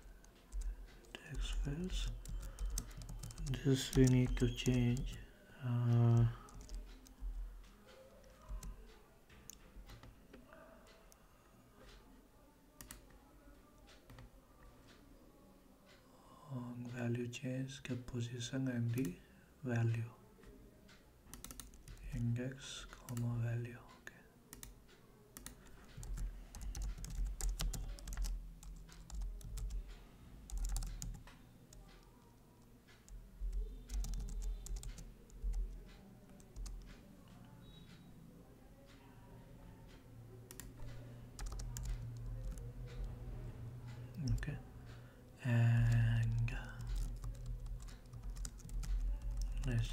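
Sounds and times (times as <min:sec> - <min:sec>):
computer keyboard clicking: 0:00.2 - 0:05.2, 0:05.9 - 0:07.2, 0:12.8 - 0:13.0, 0:21.3 - 0:22.2, 0:25.4 - 0:29.9, 0:30.5 - 0:32.2, 0:33.0 - 0:37.0, 0:40.5 - 0:43.2, 0:45.8 - 0:49.9.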